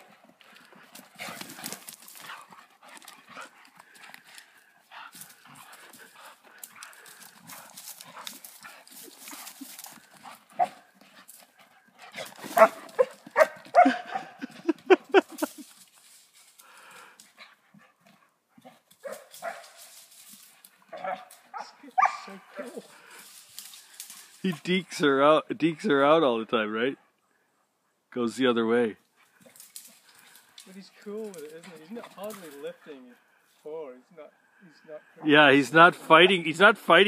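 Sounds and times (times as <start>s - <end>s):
dogs scuffling on forest litter: 0.0s - 14.2s, 15.2s - 16.6s, 18.8s - 24.5s, 29.2s - 33.0s
dogs barking and growling: 0.0s - 15.5s, 20.6s - 23.1s.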